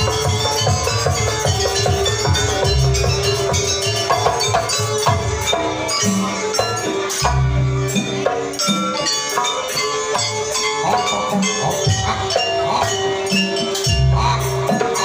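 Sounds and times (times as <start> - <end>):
keyboard playing dance rhythm: 0.0 - 8.6
hand drums: 0.0 - 15.0.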